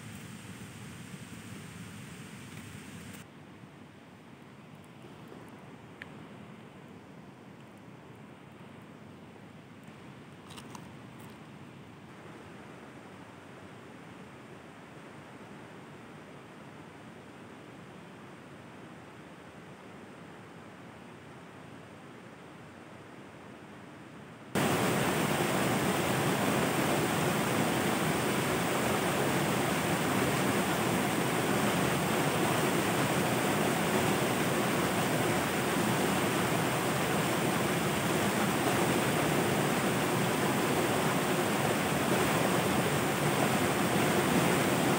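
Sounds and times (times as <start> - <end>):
fast-flowing water rushing: 24.6 - 44.9.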